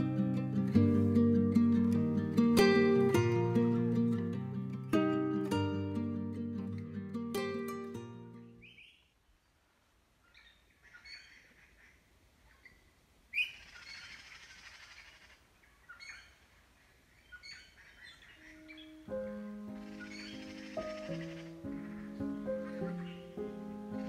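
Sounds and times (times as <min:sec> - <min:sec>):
wild birds chirping: 0:08.4 - 0:24.0.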